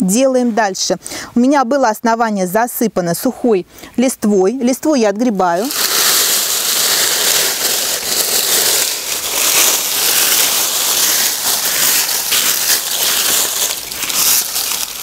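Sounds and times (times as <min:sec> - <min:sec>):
dry leaves rustling and crunching: 0:05.6 - 0:15.0.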